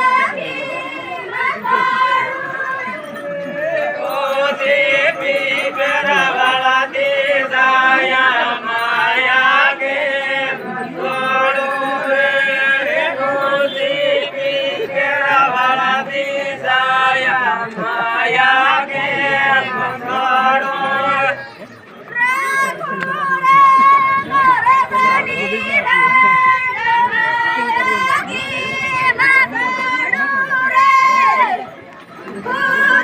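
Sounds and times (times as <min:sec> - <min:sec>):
group of voices singing: 0:00.0 - 0:31.6, 0:32.2 - 0:33.0.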